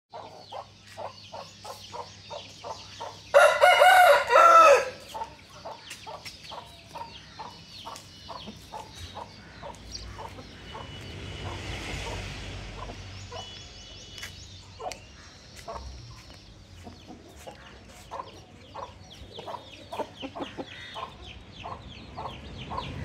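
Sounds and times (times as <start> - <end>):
hen clucking: 0.1 - 11.6, 16.8 - 23.0
chicks peeping: 0.1 - 12.2, 12.8 - 23.0
rooster crowing: 3.3 - 5.1.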